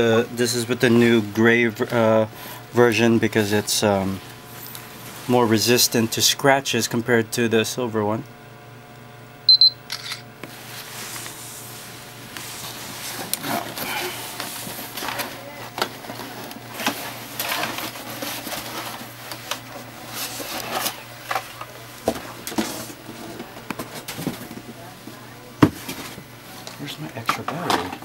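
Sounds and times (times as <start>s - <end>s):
cardboard and packaging rustling: 12.6s - 26.3s.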